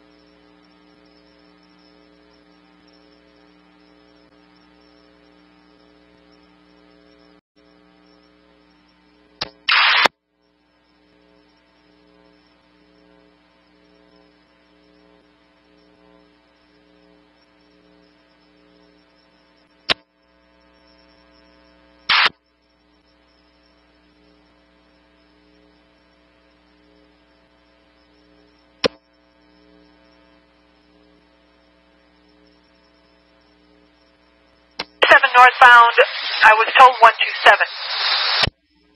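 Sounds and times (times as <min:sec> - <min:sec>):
electrical hum: 0:00.0 - 0:38.9
sharp radio clicks: 0:09.4 - 0:10.1, 0:22.0 - 0:22.4, 0:34.8 - 0:38.5
radio squelch noise bursts: 0:09.7 - 0:10.1, 0:22.0 - 0:22.4, 0:34.8 - 0:38.5.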